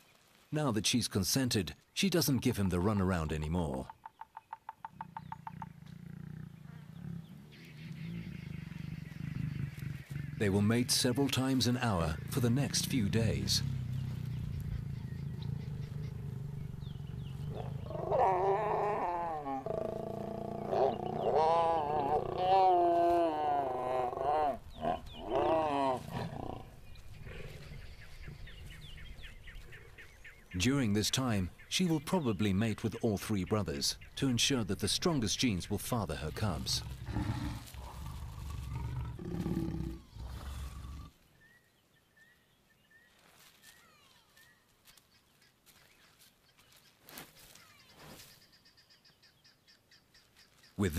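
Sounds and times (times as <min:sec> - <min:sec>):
faint chirping: 0:03.8 - 0:22.3
lions growling and snarling: 0:04.9 - 0:30.2, 0:36.1 - 0:41.2.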